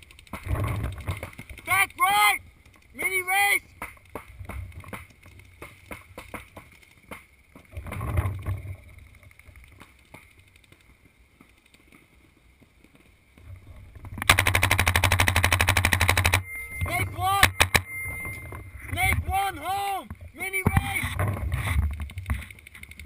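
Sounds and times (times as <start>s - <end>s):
paintball marker rapid firing: 14.2s - 16.4s.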